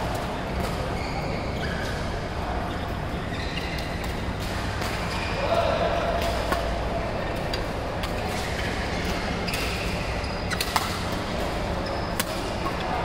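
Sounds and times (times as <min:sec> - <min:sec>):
court shoes squeaking: 0:00.0 - 0:13.0
sports hall din: 0:00.0 - 0:13.0
rackets hitting shuttlecock: 0:12.1 - 0:12.9.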